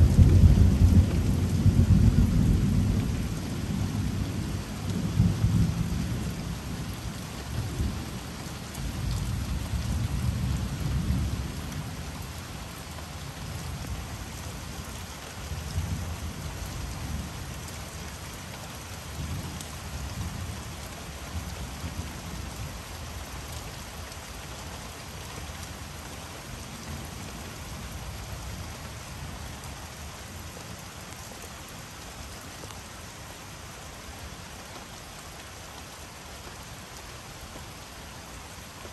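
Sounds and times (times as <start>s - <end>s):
thunder rumbling: 0.0s - 6.3s
rain falling: 0.0s - 38.9s.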